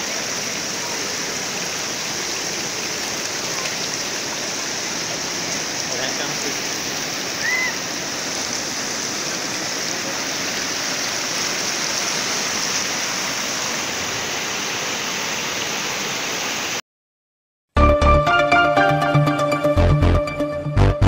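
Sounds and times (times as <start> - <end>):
floodwater rushing: 0.0 - 16.8.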